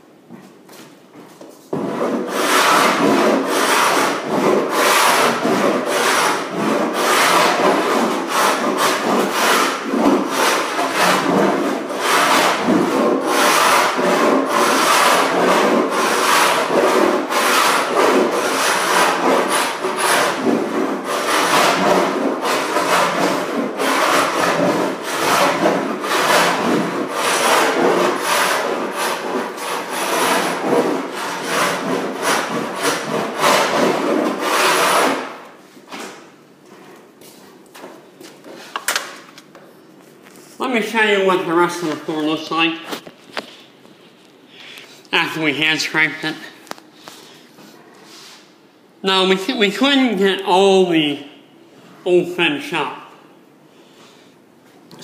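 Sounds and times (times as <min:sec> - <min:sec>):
scraper rasping on wooden floor: 0:01.7 - 0:35.4.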